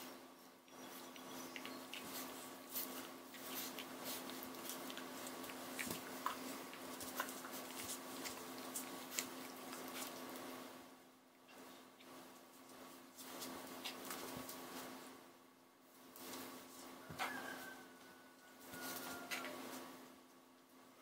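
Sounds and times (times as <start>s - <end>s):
steady low hum: 0.0s - 21.0s
clicks of teeth and paws: 0.7s - 10.5s.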